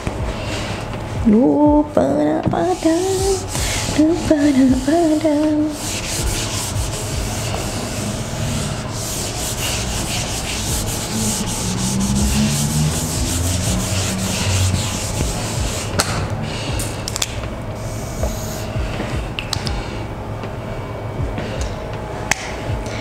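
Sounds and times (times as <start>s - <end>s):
eraser rubbing whiteboard: 2.7s - 16.7s.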